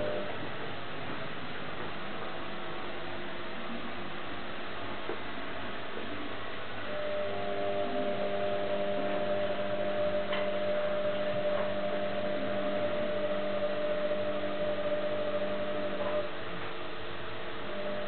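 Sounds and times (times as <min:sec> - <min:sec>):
electrical hum with held tones: 0:00.0 - 0:18.0.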